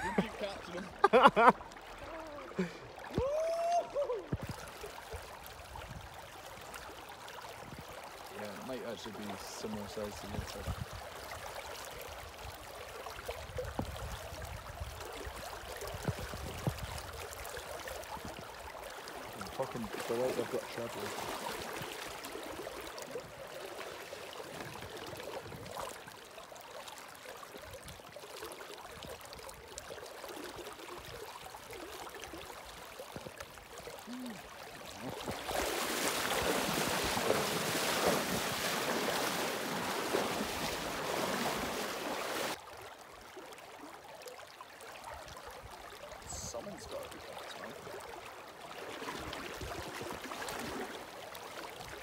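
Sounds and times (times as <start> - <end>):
wind buffeting microphone: 13.4 - 15.0, 15.9 - 17.2
fast-flowing river rushing: 34.4 - 42.6.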